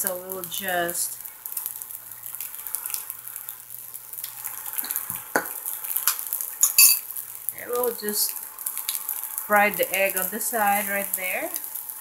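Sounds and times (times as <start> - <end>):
fried rice sizzling in a pan: 0.0 - 12.0
sharp ringing clink: 6.6 - 7.0.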